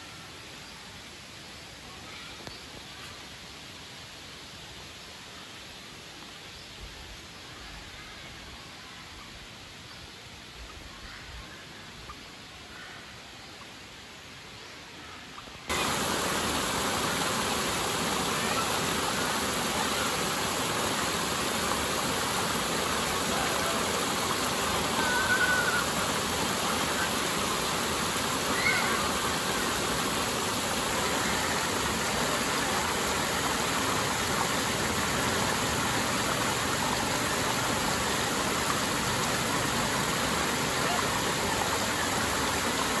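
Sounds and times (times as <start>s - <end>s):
stream water over rocks: 7.5s - 43.0s
faint high sounds: 23.2s - 27.6s.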